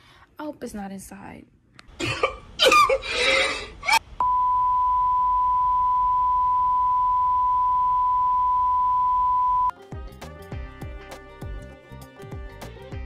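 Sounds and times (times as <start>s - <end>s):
steady test tone beep: 4.2s - 9.7s
music: 9.7s - 13.0s.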